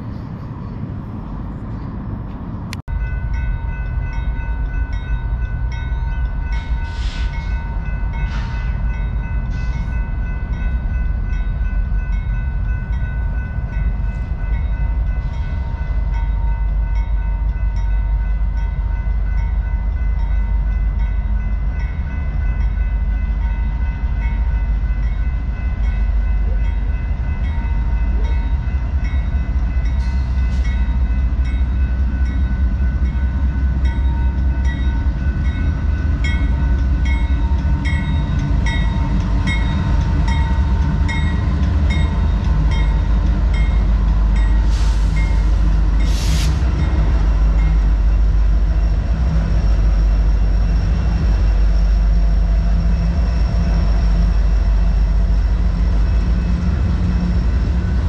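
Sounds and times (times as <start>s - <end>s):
freight train rumbling past: 0.0s - 58.0s
steady high ringing tone: 46.8s - 58.0s.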